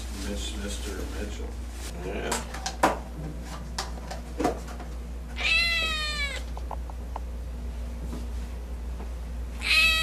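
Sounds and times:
kitten meowing: 5.4s - 6.5s, 9.6s - 10.0s.

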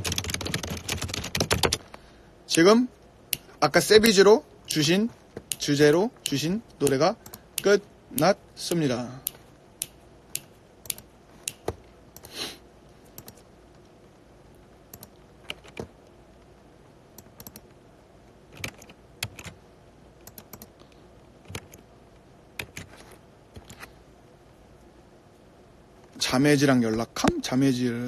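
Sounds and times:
typing on computer keyboard: 0.0s - 1.8s, 14.9s - 15.9s, 18.5s - 19.6s, 20.2s - 20.7s, 21.4s - 21.8s, 22.6s - 23.0s.

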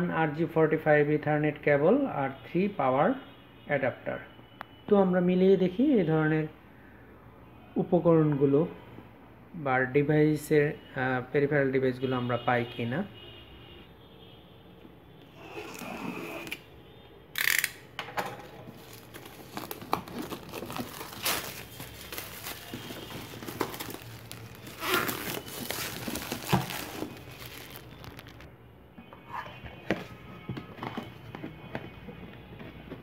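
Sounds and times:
shrink wrap crinkling: 18.6s - 28.5s
plastic wrap ripping: 18.7s - 28.5s.

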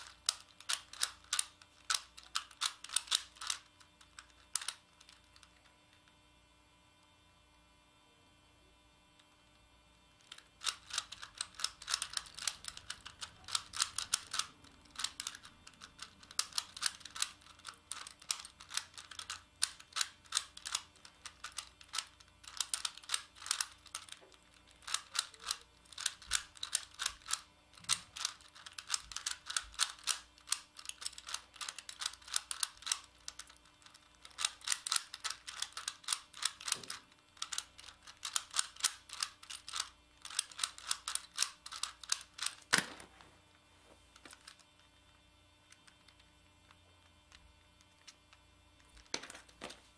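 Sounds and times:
plastic puzzle clicking: 0.0s - 5.6s, 10.2s - 43.0s.

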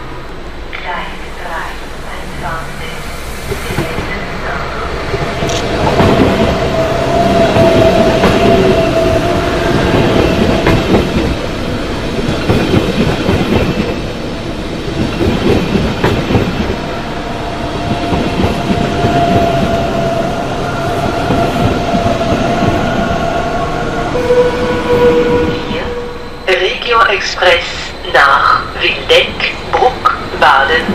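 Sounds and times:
steady high whine: 0.0s - 5.8s
train wheels clattering over rails: 5.0s - 20.2s.

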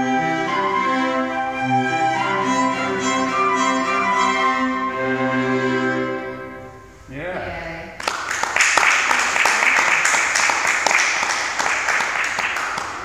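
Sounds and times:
chamber quartet playing sustained notes: 0.0s - 7.2s.

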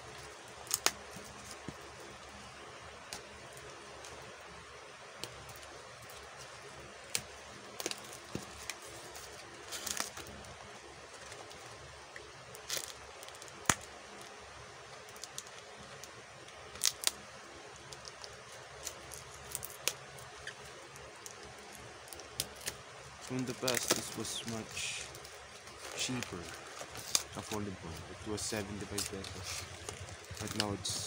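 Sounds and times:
crackly tape tearing: 0.1s - 4.2s, 5.2s - 10.5s, 12.5s - 14.3s, 15.0s - 17.2s, 17.8s - 31.0s
packing tape peeling off cardboard: 5.3s - 10.4s, 21.3s - 31.0s.

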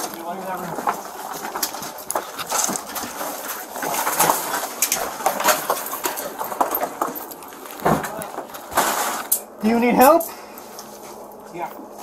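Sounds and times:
close rustling: 0.0s - 9.5s.

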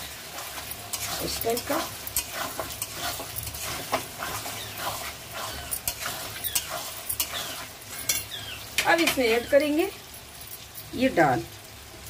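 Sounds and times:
hot oil sizzling: 0.0s - 12.0s
metal spatula scraping a pan: 0.2s - 9.4s.

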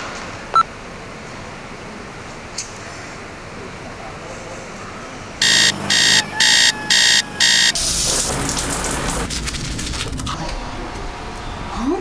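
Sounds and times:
alarm clock beeping: 5.4s - 7.8s
shower water spraying: 7.5s - 10.2s.

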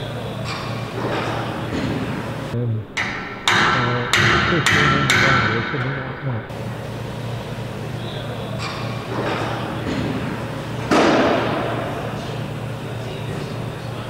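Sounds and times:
steady low hum: 0.0s - 14.0s
metal knocks and clanks: 3.0s - 6.1s.

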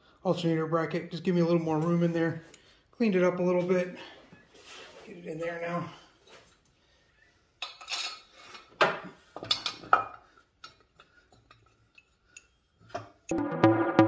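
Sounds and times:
electronic music: 13.3s - 14.0s.

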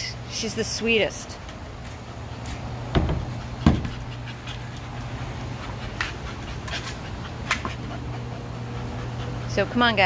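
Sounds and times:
dog panting: 3.3s - 10.0s.

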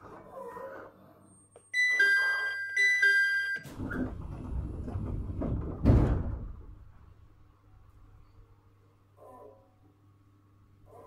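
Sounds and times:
electronic two-tone door chime: 1.8s - 3.7s
loud thud: 5.3s - 6.8s.

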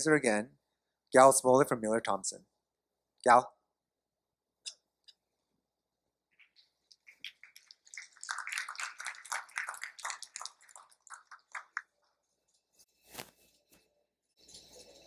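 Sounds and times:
audience applause: 7.3s - 11.9s.

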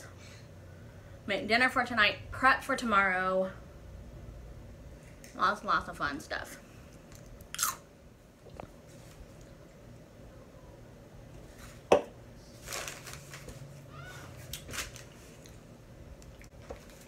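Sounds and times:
paper rustling: 12.6s - 13.7s.

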